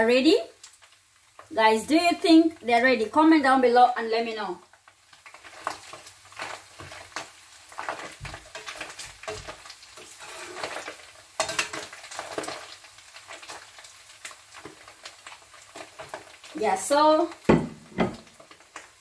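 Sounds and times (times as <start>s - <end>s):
fish sizzling in oil: 0.0s - 19.0s
metal spatula scraping and clinking: 7.9s - 12.4s.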